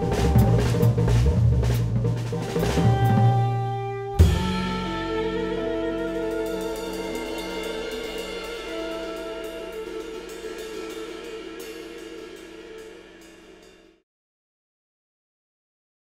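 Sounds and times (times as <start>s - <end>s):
jazz band holding notes: 0.0s - 13.9s
cymbal strokes: 4.2s - 14.0s.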